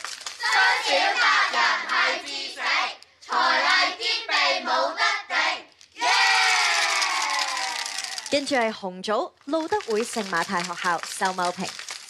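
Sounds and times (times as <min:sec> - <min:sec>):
children chanting in unison: 0:00.4 - 0:06.4.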